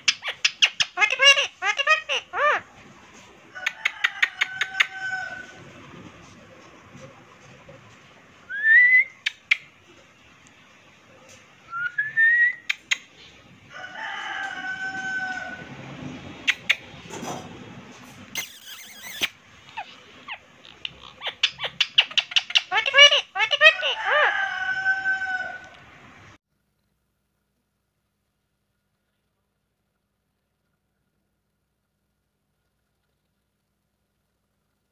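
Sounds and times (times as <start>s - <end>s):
parrot whistling: 18.4s - 23.8s.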